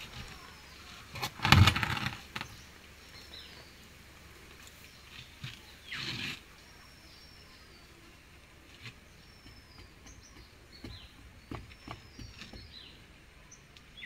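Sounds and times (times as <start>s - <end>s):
roof tile pressed into mortar: 1.1s - 2.5s
trowel scraping wet mortar: 5.4s - 6.5s.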